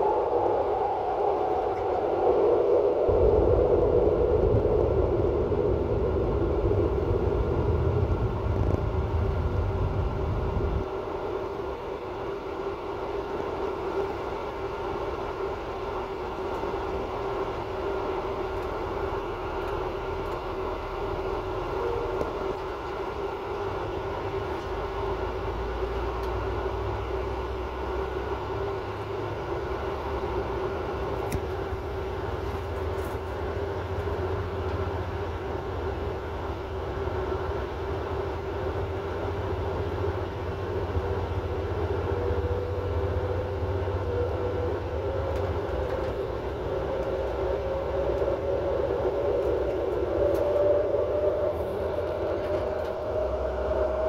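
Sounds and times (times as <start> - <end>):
rising motor whine: 0.0 - 14.4, 38.2 - 54.0
train rumbling: 0.0 - 54.0.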